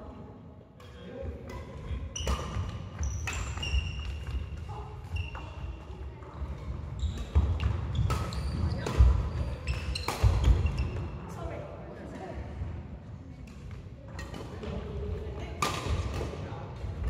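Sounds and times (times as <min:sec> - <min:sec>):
racket hitting shuttlecock: 0:00.8 - 0:05.5, 0:06.6 - 0:11.1, 0:15.6 - 0:16.4.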